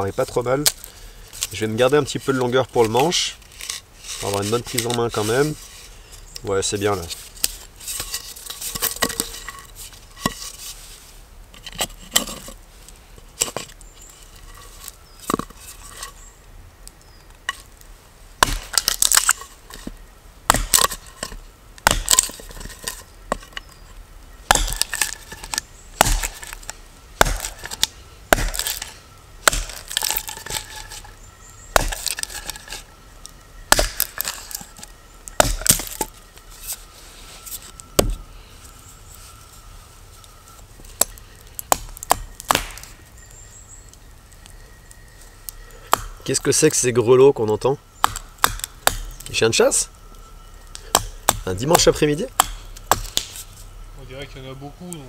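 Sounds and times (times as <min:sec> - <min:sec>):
hatchet chopping wood: 0:18.4 - 0:19.4, 0:20.5 - 0:22.7, 0:24.5 - 0:31.0, 0:31.7 - 0:32.8, 0:33.7 - 0:34.6, 0:35.4 - 0:36.1, 0:38.0 - 0:38.2, 0:41.7 - 0:43.0, 0:45.9 - 0:46.2, 0:48.0 - 0:49.3, 0:50.7 - 0:53.4.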